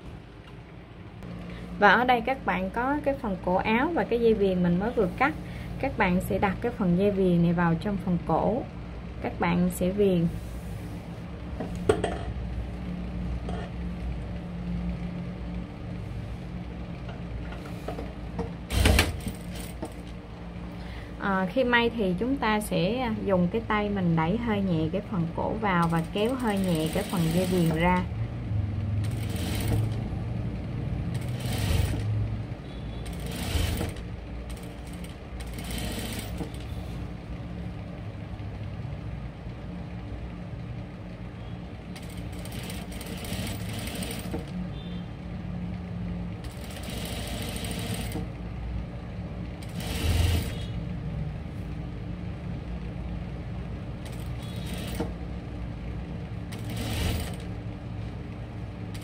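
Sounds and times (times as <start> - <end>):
sewing machine stitching: 18.6 - 20.1, 25.7 - 28.1, 29.0 - 30.1, 31.1 - 32.2, 33.0 - 36.8, 42.0 - 44.6, 46.4 - 48.3, 49.6 - 50.8, 54.0 - 55.2, 56.5 - 57.6.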